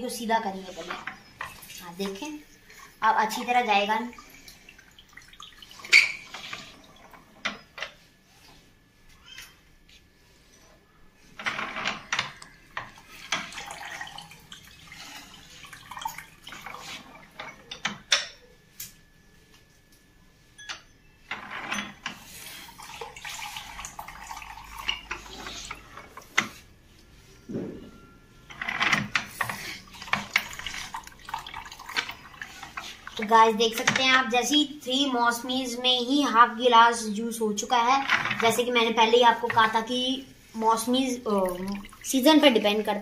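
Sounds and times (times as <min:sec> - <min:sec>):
juice trickling into a cup: 0:12.9 - 0:17.2, 0:22.3 - 0:26.0, 0:29.8 - 0:33.2.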